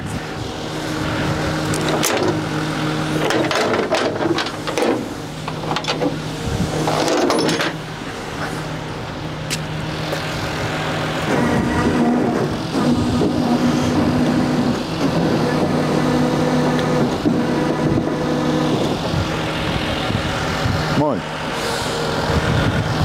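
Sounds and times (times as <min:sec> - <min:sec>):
truck engine running: 0:00.0 - 0:23.0
knocks and scrapes of car: 0:03.2 - 0:06.2, 0:06.8 - 0:07.8.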